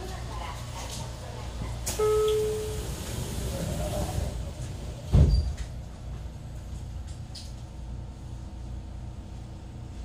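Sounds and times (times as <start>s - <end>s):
low hum of standing train: 0.0s - 10.0s
train doors closing with thud: 1.5s - 5.8s.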